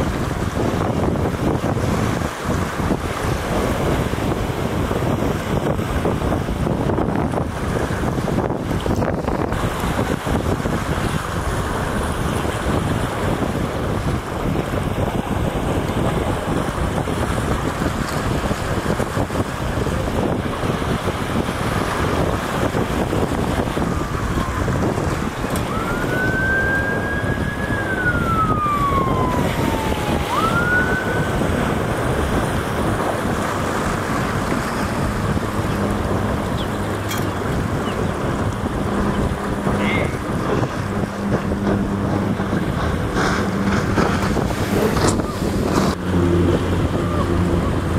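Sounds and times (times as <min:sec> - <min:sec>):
boat engine: 0:00.0 - 0:47.9
water noise: 0:00.0 - 0:47.9
wind rushing over microphone: 0:00.0 - 0:47.9
siren wailing: 0:23.7 - 0:32.0, 0:44.8 - 0:47.9.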